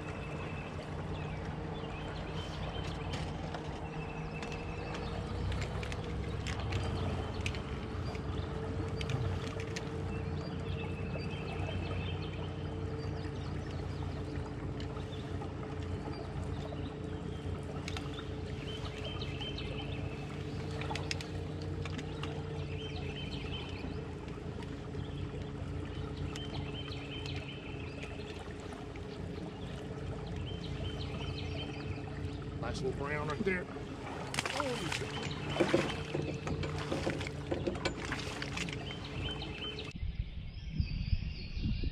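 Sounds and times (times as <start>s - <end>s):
water against hull: 0.0s - 40.0s
knocks in metal boat: 34.3s - 38.4s.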